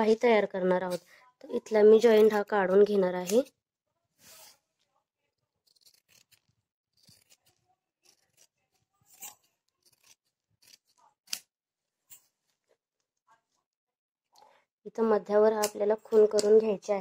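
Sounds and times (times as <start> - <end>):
scissors snipping fabric: 3.1 - 3.5, 5.5 - 11.5, 15.5 - 16.7.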